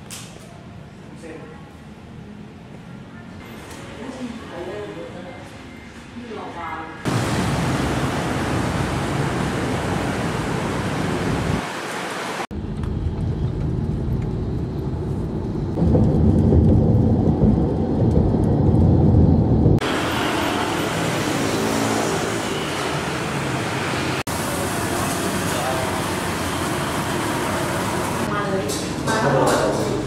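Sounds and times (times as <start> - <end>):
city street traffic: 0.0 - 30.0
traffic on wet street: 7.1 - 13.2, 19.8 - 30.0
road rumble inside car: 12.5 - 19.8.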